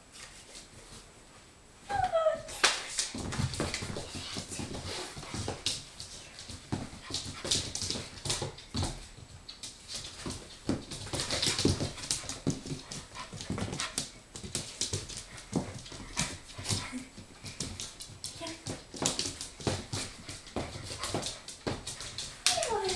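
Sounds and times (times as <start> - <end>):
puppy claws clicking on hard floor: 2.8 - 22.9.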